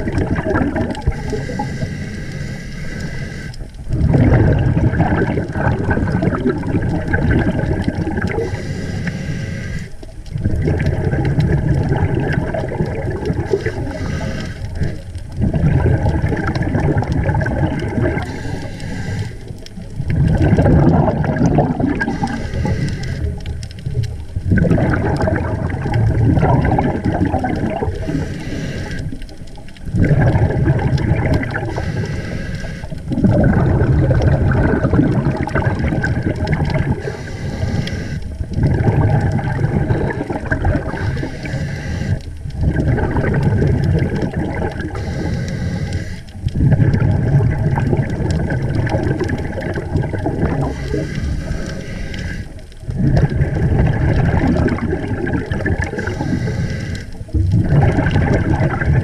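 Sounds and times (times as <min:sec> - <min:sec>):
bubbles underwater: 0:00.0 - 0:01.8, 0:03.8 - 0:08.6, 0:10.1 - 0:18.6, 0:19.2 - 0:32.1, 0:32.9 - 0:45.3, 0:46.3 - 0:56.6, 0:57.2 - 0:59.0
diver breathing through regulator: 0:01.0 - 0:04.6, 0:07.8 - 0:10.1, 0:12.9 - 0:15.2, 0:17.4 - 0:19.7, 0:21.2 - 0:23.8, 0:26.9 - 0:29.3, 0:31.5 - 0:33.6, 0:36.7 - 0:38.4, 0:40.0 - 0:42.4, 0:44.8 - 0:47.2, 0:50.3 - 0:53.4, 0:55.8 - 0:57.4.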